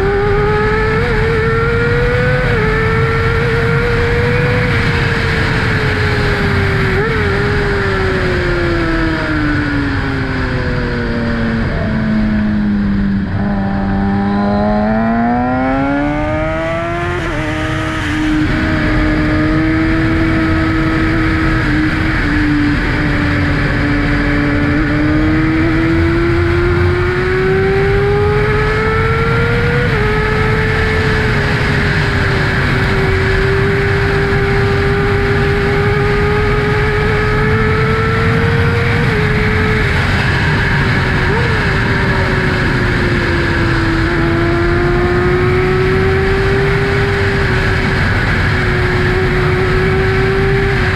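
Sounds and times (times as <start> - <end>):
motorcycle engine running: 0.0 - 50.9
wind rush on microphone: 0.0 - 50.9.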